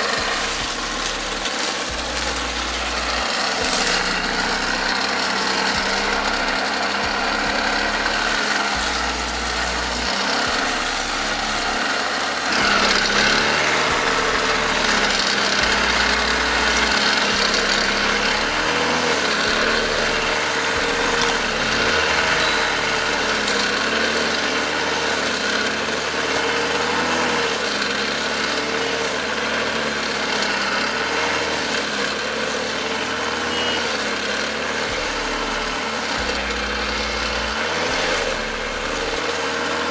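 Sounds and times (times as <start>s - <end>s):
blade slashing through grass: 0.0s - 29.1s
brush cutter engine running: 0.0s - 39.9s.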